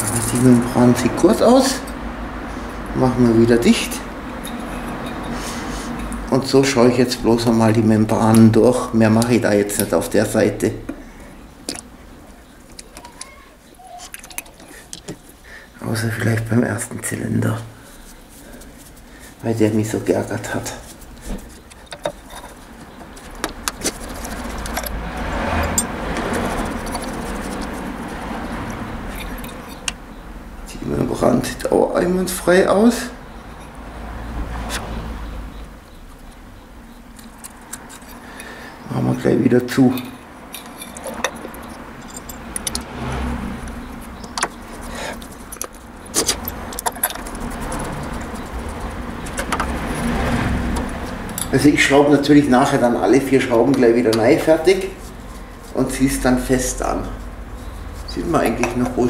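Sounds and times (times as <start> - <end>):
screwdriver and screws clicking: 14.0 - 15.2, 21.5 - 30.0, 36.3 - 38.3, 40.0 - 43.0, 43.6 - 51.6.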